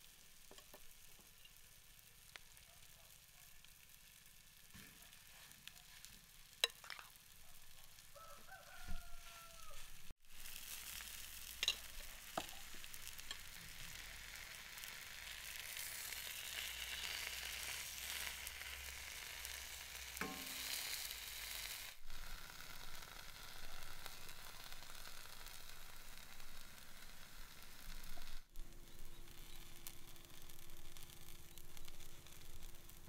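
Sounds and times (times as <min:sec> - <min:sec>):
batter sizzling in a pan: 0:00.0 - 0:33.0
faint rooster crowing: 0:07.8 - 0:10.1.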